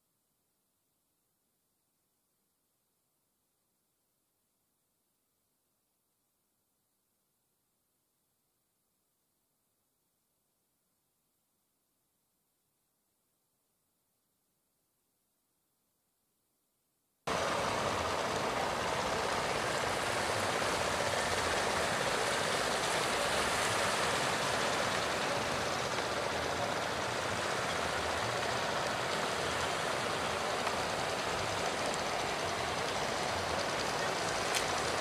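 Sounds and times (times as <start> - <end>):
rough water and surf rushing: 17.3 - 35.0.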